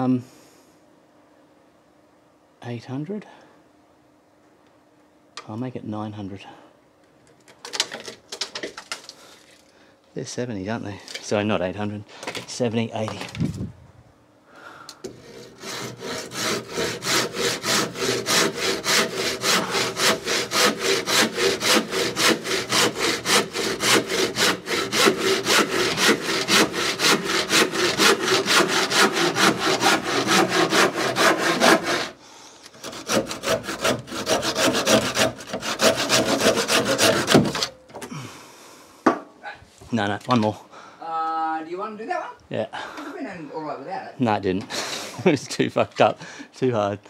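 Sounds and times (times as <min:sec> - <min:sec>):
hand saw cutting wood: 0:15.0 - 0:37.8.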